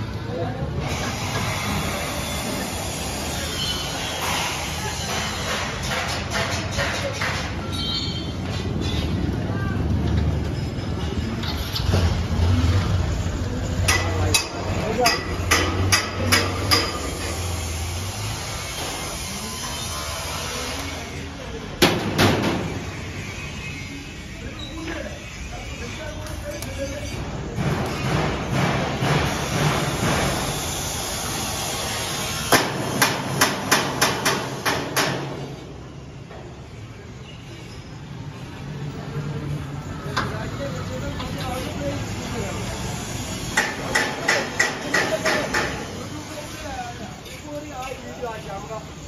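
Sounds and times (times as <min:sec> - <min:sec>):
hammer striking metal frame: 0:04.2 - 0:08.0, 0:13.8 - 0:17.4, 0:27.5 - 0:30.6, 0:32.5 - 0:35.5, 0:43.5 - 0:46.0.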